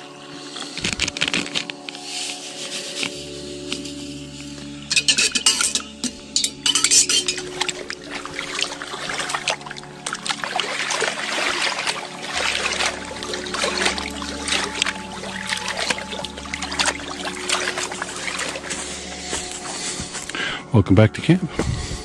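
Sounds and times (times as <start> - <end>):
small waves lapping on rocky shore: 7.4 - 18.9.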